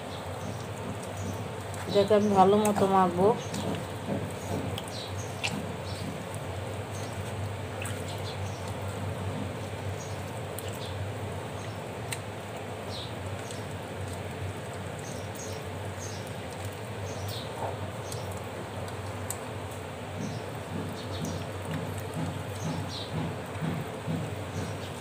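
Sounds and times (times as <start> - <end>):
hands squishing wet fish: 0.1 - 25.0.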